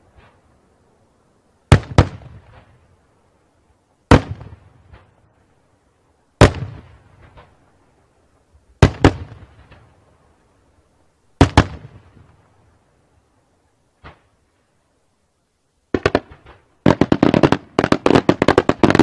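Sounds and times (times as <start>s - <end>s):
faint fireworks pops: 1.7s - 2.8s, 4.1s - 5.3s, 6.4s - 7.7s, 8.8s - 10.0s, 11.4s - 12.5s, 14.0s - 14.4s, 15.9s - 19.0s
fireworks bangs: 1.7s - 2.8s, 4.1s - 5.3s, 6.4s - 7.6s, 8.8s - 9.9s, 11.4s - 12.4s, 15.9s - 19.0s.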